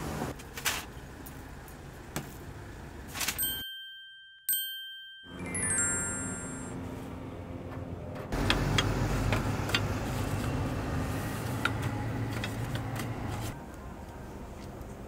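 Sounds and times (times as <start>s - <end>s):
short descending chime: 3.4s - 6.8s.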